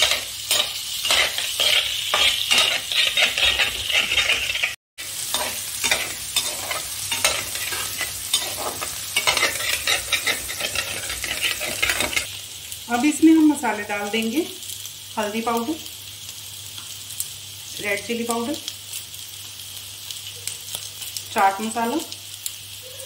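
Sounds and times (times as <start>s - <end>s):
metal spoon scraping pan: 0.0s - 12.3s
hot oil sizzling: 0.0s - 23.0s.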